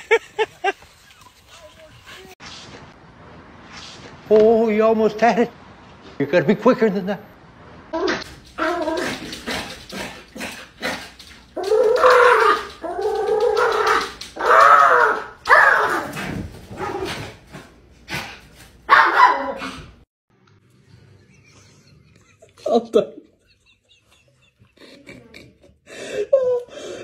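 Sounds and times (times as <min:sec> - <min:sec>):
dog barking: 0:14.4 - 0:16.1, 0:18.9 - 0:19.8.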